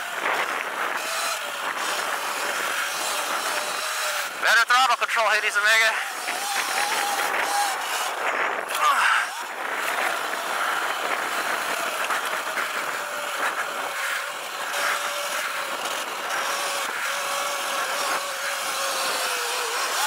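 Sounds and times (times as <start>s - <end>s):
electric motor whining: 0.0s - 20.0s
wind rushing: 6.0s - 13.9s.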